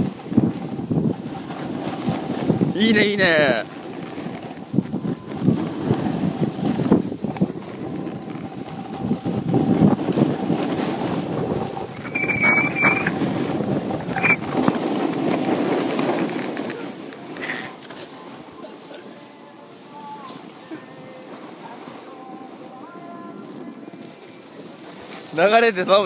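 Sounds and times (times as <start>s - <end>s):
wind rushing over microphone: 0.0s - 17.2s
snowboard edges scraping snow: 0.0s - 26.0s
short high chirps: 12.0s - 13.2s, 14.1s - 14.5s.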